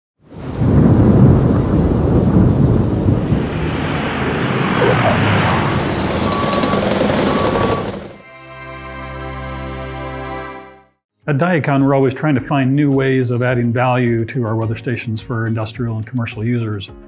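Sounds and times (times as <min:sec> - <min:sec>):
noisy rumbling whoosh: 0:00.6 - 0:06.5.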